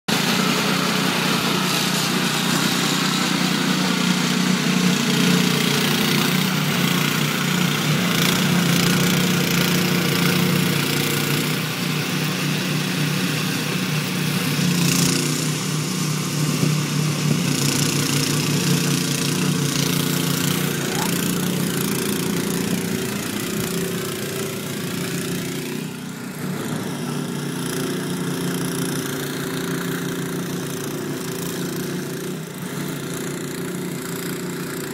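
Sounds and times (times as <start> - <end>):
snowblower engine running: 0.1 - 34.9.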